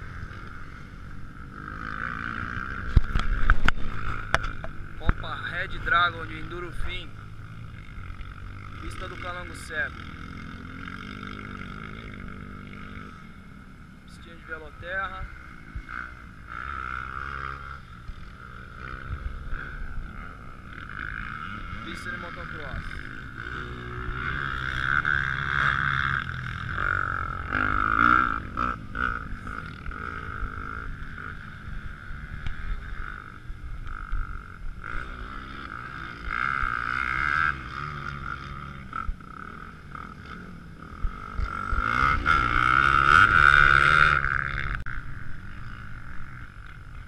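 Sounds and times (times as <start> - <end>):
dirt bike engines revving: 0.0 - 47.0.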